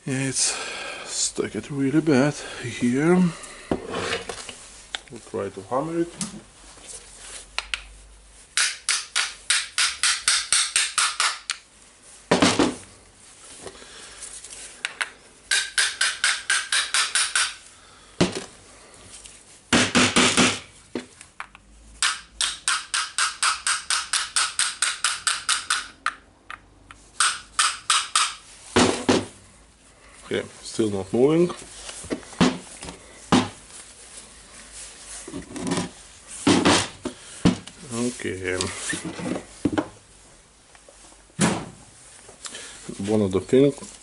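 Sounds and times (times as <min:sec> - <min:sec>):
hammer tapping on steel: 0:08.6 - 0:11.6, 0:15.5 - 0:17.6, 0:22.0 - 0:26.6, 0:27.2 - 0:28.4.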